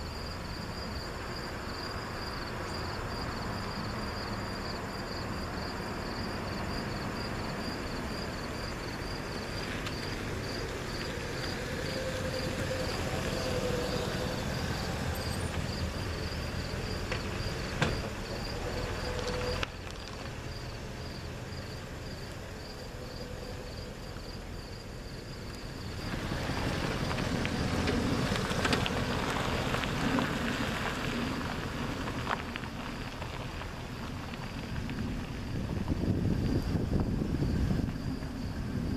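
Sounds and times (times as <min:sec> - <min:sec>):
car engine passing by: 0:00.0 - 0:38.9
crickets chirping: 0:00.0 - 0:38.9.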